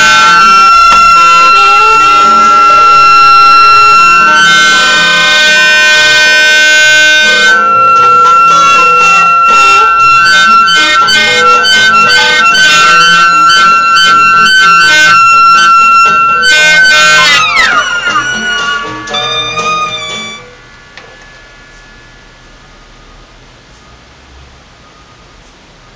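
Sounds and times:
speaker buzzing against wood: 0:00.0 - 0:20.2
synthesizer tones: 0:00.0 - 0:24.1.

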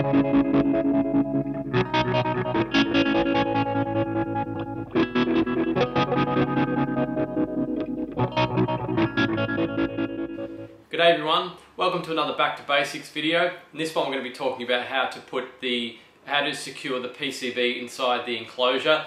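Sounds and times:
distorted electric guitar riff: 0:00.0 - 0:10.8.

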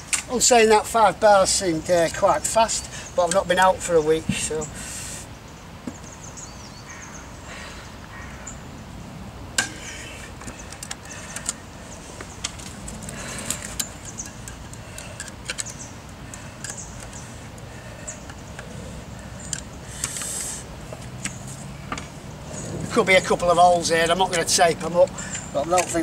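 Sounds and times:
hand tool clicking and scraping on grill: 0:12.2 - 0:18.7, 0:19.4 - 0:21.4, 0:24.2 - 0:26.0.

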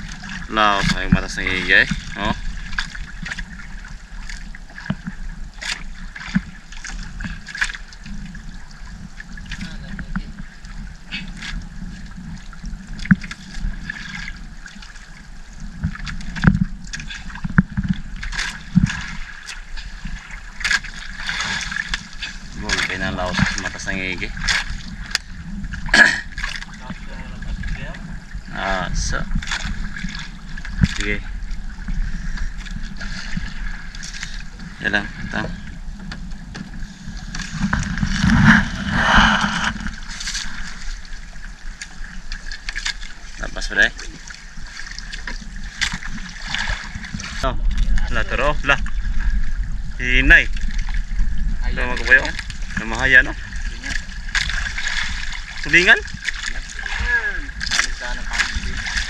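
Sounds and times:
trickling water: 0:00.0 - 0:59.0
net hauled over boat side: 0:16.0 - 0:41.6.

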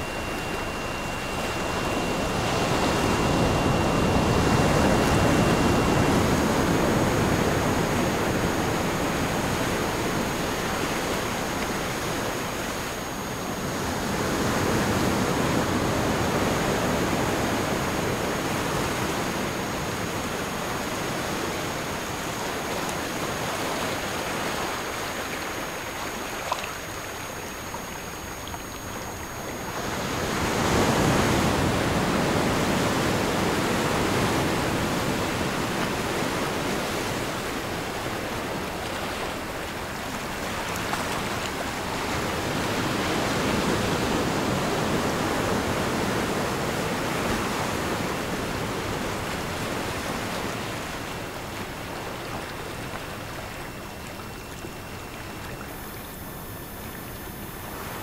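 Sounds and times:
faint thin high tones: 0:00.0 - 0:31.7, 0:53.6 - 0:58.0.

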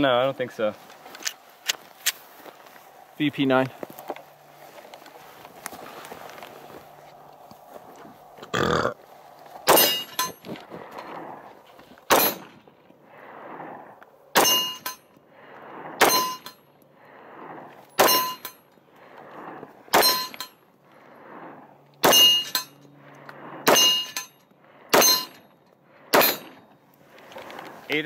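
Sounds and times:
metallic ring of steel target: 0:09.7 - 0:10.4, 0:12.1 - 0:12.6, 0:14.4 - 0:15.1, 0:16.0 - 0:16.6, 0:18.0 - 0:18.6, 0:19.9 - 0:20.6, 0:22.0 - 0:22.9, 0:23.6 - 0:25.5, 0:26.1 - 0:26.7
pistol shots: 0:12.1 - 0:12.5, 0:16.0 - 0:16.4, 0:18.0 - 0:18.4, 0:19.9 - 0:20.3, 0:26.1 - 0:26.6.

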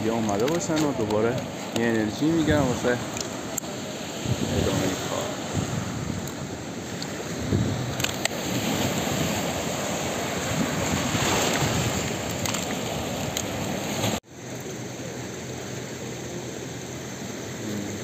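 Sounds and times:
rushing floodwater: 0:00.0 - 0:18.0
steady hiss: 0:00.0 - 0:18.0
wind buffeting microphone: 0:04.1 - 0:14.2.

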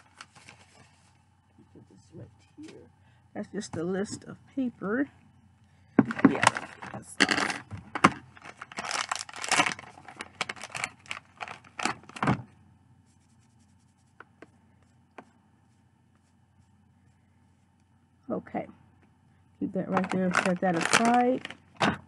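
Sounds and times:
packet crinkling and tearing: 0:08.3 - 0:12.2, 0:19.9 - 0:21.8.

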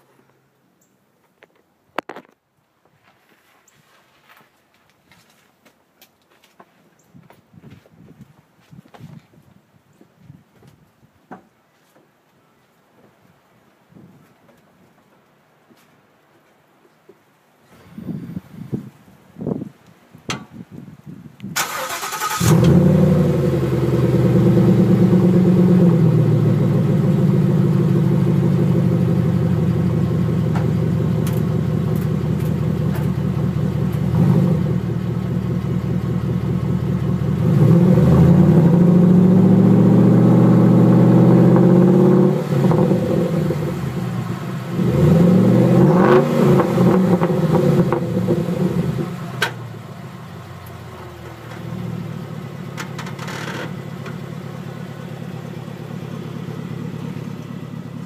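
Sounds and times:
loud engine revving: 0:21.6 - 0:29.1, 0:34.1 - 0:35.0, 0:37.3 - 0:49.4.

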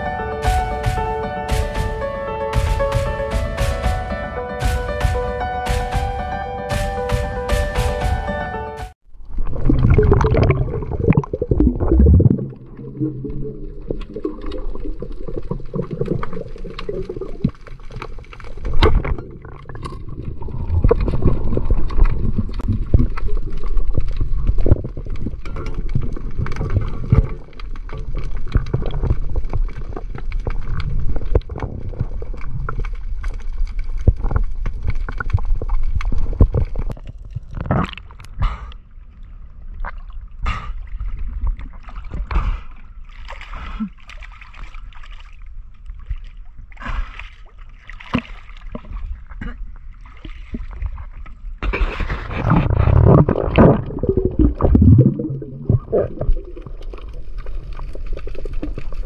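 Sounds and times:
muffled water sloshing and gurgling: 0:08.8 - 0:59.0.

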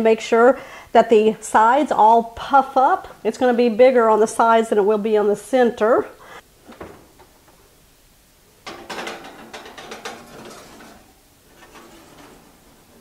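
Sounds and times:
oven rack rattling and clicking: 0:08.6 - 0:13.0.

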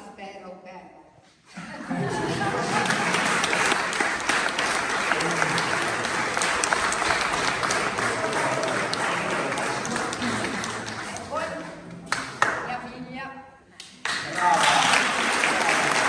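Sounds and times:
audience applauding: 0:02.1 - 0:12.7, 0:14.0 - 0:16.0.

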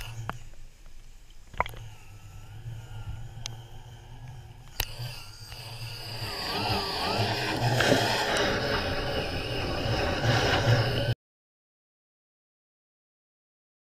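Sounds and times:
hull-cleaning machine motor humming: 0:00.0 - 0:11.2
sharp clicks: 0:04.2 - 0:05.9.

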